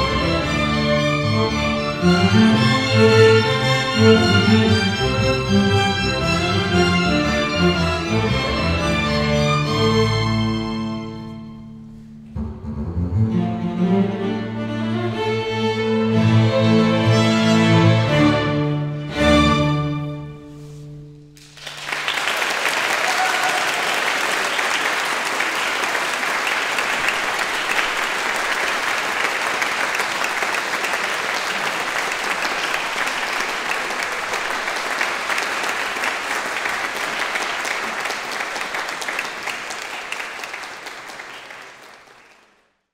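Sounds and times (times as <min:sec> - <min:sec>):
string ensemble chord: 0:00.0 - 0:21.4
audience applause: 0:21.4 - 0:42.8.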